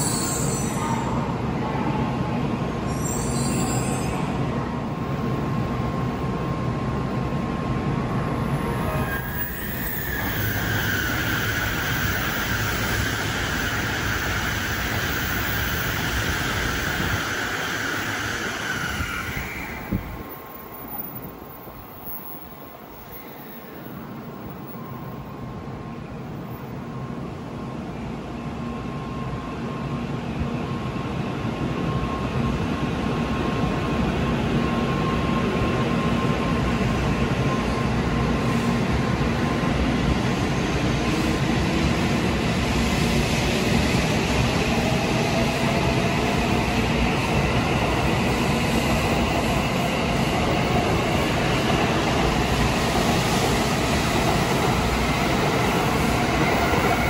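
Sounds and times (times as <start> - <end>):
train rolling rumble and hiss: 0.0 - 57.0.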